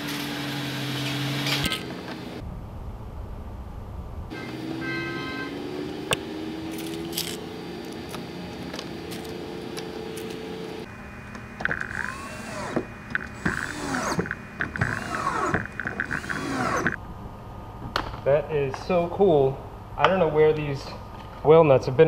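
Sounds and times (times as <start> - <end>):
cordless drill whirring: 11.6 - 17.0.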